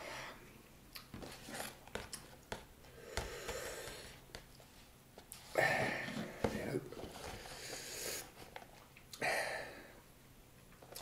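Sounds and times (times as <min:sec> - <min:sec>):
faint breathing: 0:02.8 - 0:04.2, 0:05.5 - 0:08.4.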